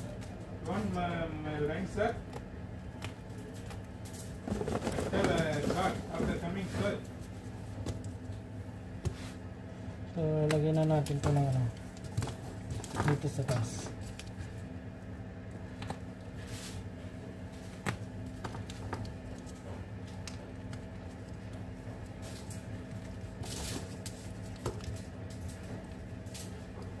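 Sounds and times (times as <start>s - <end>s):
low machine hum: 0.0s - 27.0s
foil wrappers crinkling: 3.2s - 8.6s, 10.4s - 14.8s, 17.7s - 27.0s.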